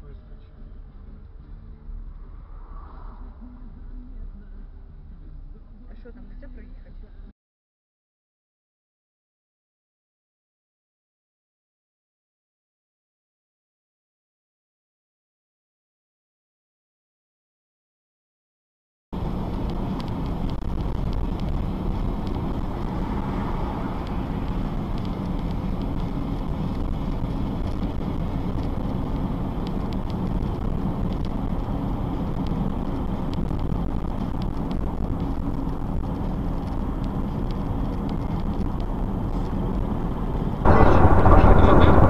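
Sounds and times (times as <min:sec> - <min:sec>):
car engine and road noise: 0:00.0 - 0:07.3, 0:19.2 - 0:42.0.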